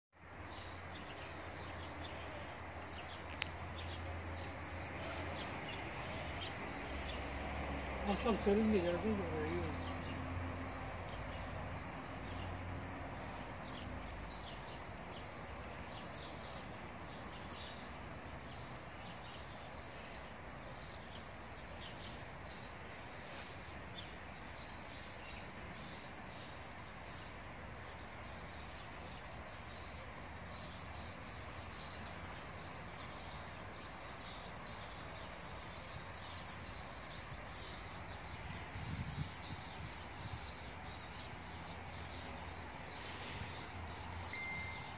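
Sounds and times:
outdoor background noise: 0.1 - 44.9
bird chirping: 0.2 - 44.9
faint chirps: 40.6 - 44.9.

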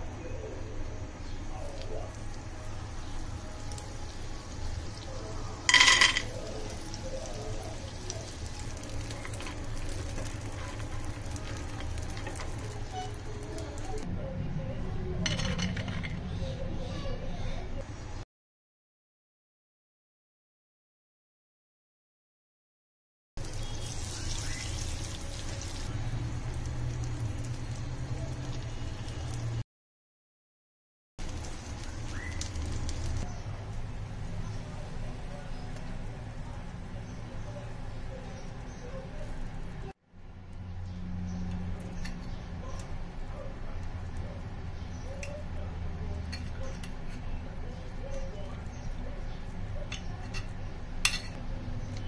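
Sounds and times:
butter sizzling in a pan: 1.7 - 14.0, 23.4 - 29.6, 31.2 - 33.3
peanuts clattering into a pan: 5.7 - 6.8
spatula stirring: 5.7 - 14.0.

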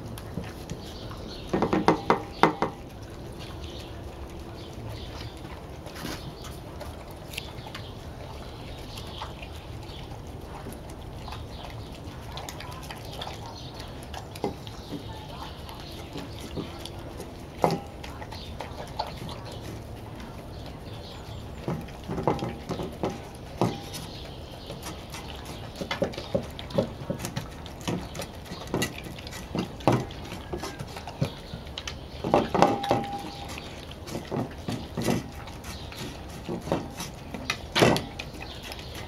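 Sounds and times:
dogs eating from metal bowls: 0.0 - 39.0
metal bowl ringing: 32.6 - 33.5.

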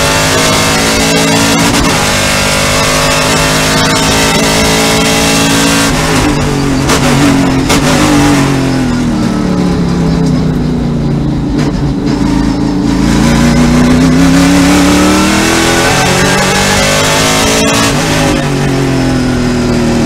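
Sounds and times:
race car engine revving: 0.0 - 20.0.

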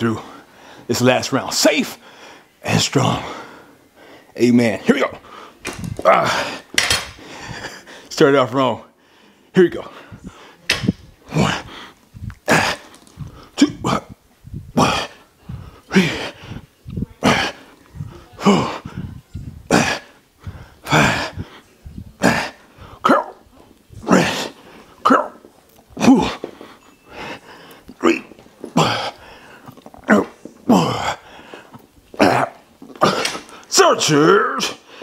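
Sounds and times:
man exhaling forcefully with grunts: 14.7 - 16.6.

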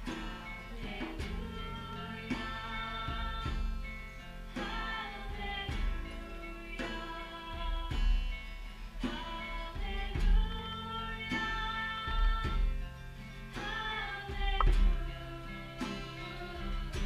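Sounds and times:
acoustic guitar chords: 0.0 - 17.0
person singing slow song: 0.0 - 17.0.

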